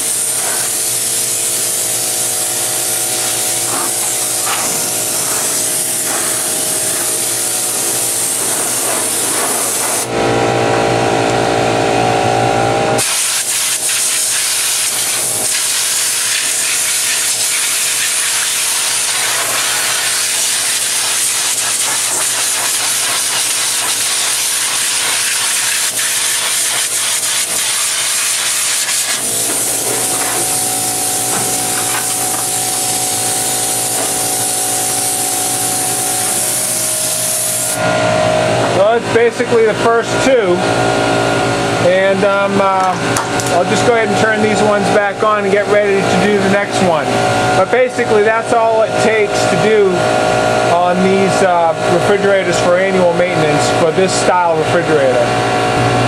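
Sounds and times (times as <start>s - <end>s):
compressed air hissing: 0.0s - 10.1s, 13.0s - 37.8s
air compressor motor hum: 0.0s - 56.0s.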